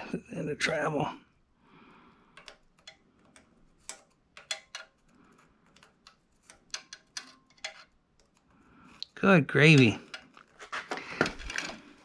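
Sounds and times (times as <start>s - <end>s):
small metal tools clicking: 2.4s - 8.5s.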